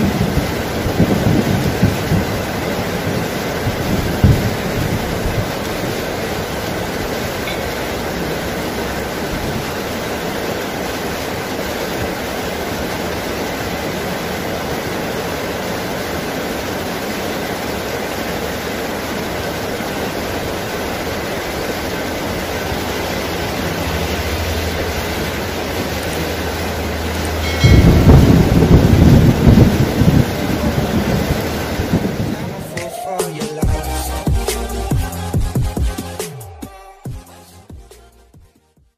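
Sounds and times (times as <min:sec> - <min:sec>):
low rumble of thunder: 0:00.0 - 0:07.4, 0:23.6 - 0:32.7
heavy rain on foliage: 0:00.0 - 0:38.7.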